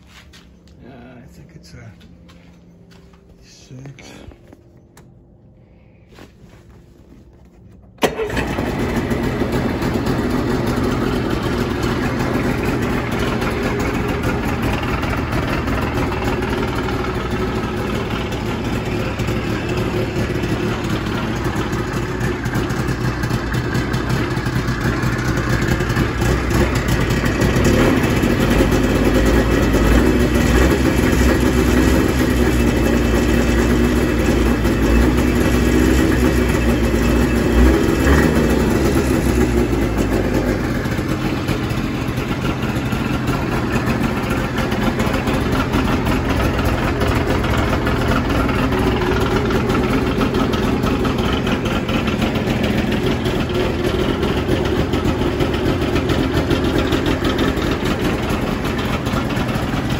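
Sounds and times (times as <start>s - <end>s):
snowmobile engine starting and running: 0.0s - 59.9s.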